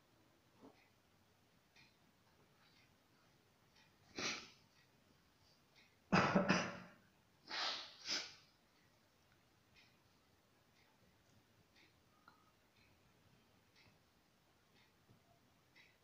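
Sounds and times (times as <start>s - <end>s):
person coughing: 6.1s - 7.0s.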